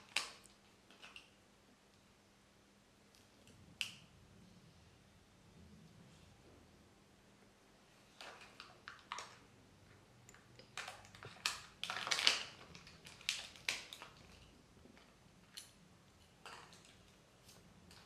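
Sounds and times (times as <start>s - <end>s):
foil and plastic wrapping crinkling: 10.7s - 14.5s.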